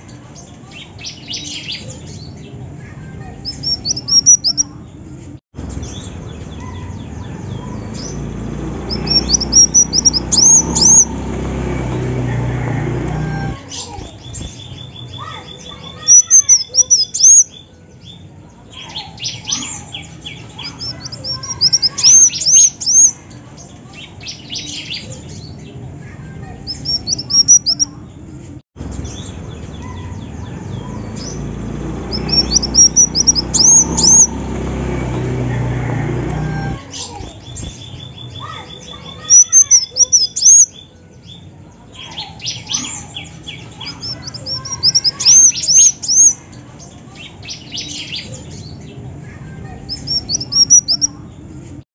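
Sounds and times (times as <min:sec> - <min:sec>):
bird high thin chirps: 0:03.4 - 0:04.7, 0:08.9 - 0:11.1, 0:13.4 - 0:17.7, 0:18.8 - 0:23.2, 0:26.7 - 0:27.9, 0:32.1 - 0:34.4, 0:36.5 - 0:40.8, 0:42.0 - 0:46.4, 0:49.9 - 0:51.2
bird ticking trills: 0:03.4 - 0:04.8, 0:05.7 - 0:13.6, 0:14.2 - 0:18.2, 0:19.1 - 0:23.2, 0:26.7 - 0:27.9, 0:29.0 - 0:41.0, 0:42.2 - 0:46.4, 0:49.9 - 0:51.2.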